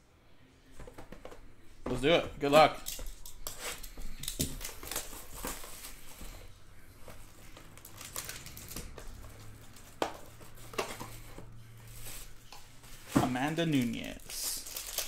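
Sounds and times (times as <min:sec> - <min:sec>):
plastic wrap crinkling: 0:03.6 - 0:06.4, 0:07.0 - 0:11.2, 0:11.8 - 0:15.0.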